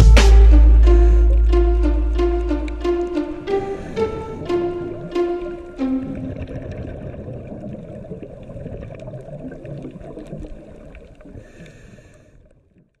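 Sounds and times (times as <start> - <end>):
faint underwater clicks: 6.3 - 13.0.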